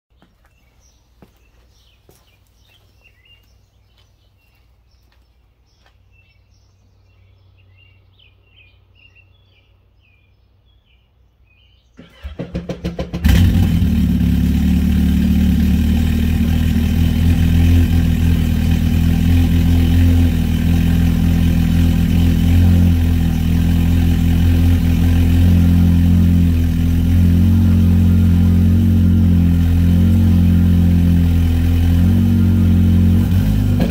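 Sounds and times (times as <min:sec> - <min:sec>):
faint bird chirps: 0:00.1 - 0:12.2
engine cranking: 0:12.0 - 0:14.0
engine idling loudly: 0:12.2 - 0:33.9.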